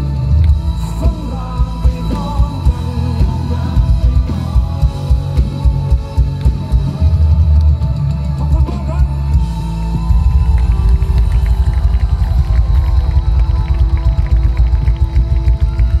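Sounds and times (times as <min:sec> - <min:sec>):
man singing: 0:00.0 - 0:09.4
live rock band: 0:00.0 - 0:16.0.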